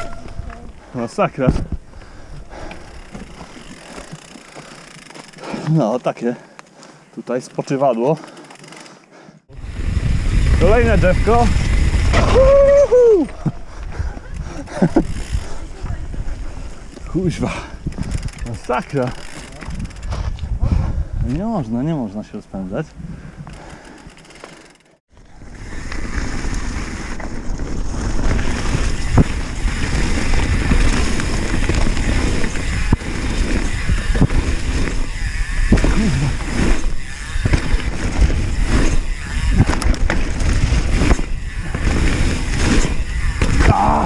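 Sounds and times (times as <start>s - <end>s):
bike knocking and rattling: 0.0s - 6.0s, 13.2s - 20.6s, 23.4s - 44.0s
wind buffeting microphone: 9.5s - 18.7s, 19.5s - 21.6s, 27.1s - 44.0s
tyres rolling over leaves and dirt: 24.5s - 44.0s.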